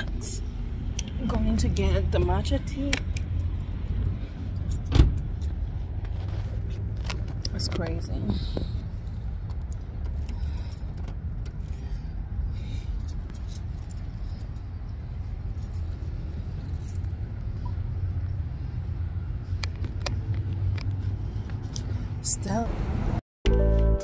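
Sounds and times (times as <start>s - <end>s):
light clicks and jingles: 9.1s - 17.7s.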